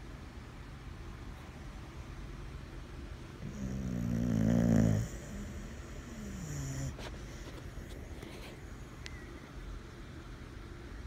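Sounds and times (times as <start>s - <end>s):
dog snoring: 3.4s - 8.2s.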